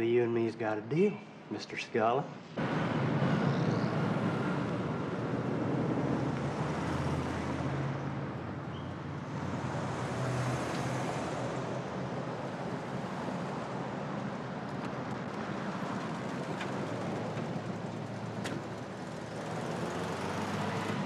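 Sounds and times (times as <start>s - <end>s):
cars driving past: 2.5s - 21.0s.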